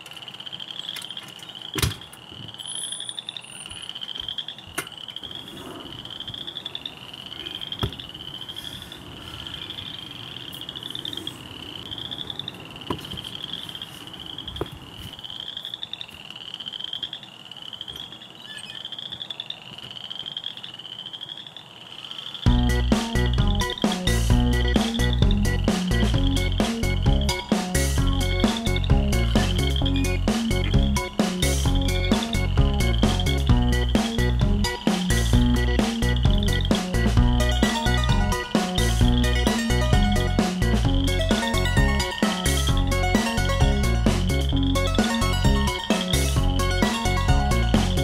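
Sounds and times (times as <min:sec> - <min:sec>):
animal buzzy rising chirp: 0:02.6 - 0:14.6, 0:22.4 - 0:48.0.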